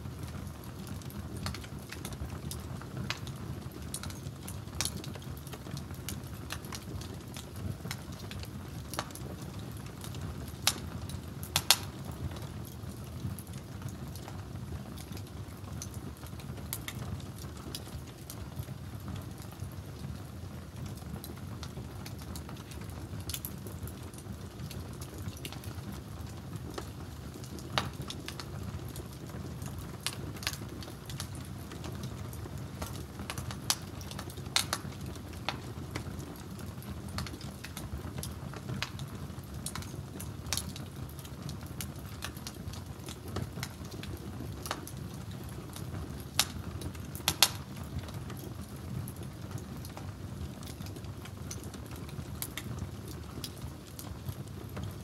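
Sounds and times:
wood fire crackling: 0.0s - 55.0s
sharp pops from fire: 0.8s - 12.8s, 15.8s - 18.3s, 21.3s - 25.8s, 26.6s - 49.2s.

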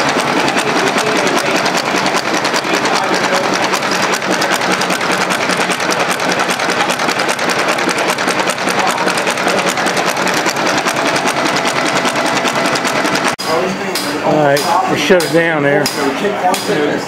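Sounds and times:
engine valves clattering: 0.0s - 13.6s.

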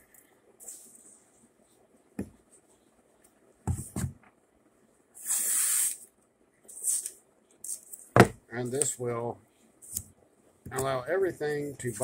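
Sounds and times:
short hissing scrape: 5.2s - 6.0s, 6.7s - 7.8s.

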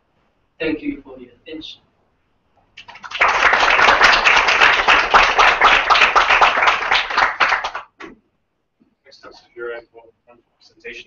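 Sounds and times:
audience applauding: 2.8s - 8.0s.

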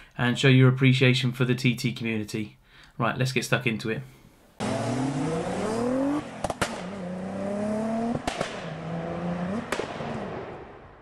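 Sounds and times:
car engine accelerating: 4.6s - 10.7s
sharp crack at upshift: 6.2s - 7.1s, 8.1s - 8.9s, 9.5s - 10.9s.

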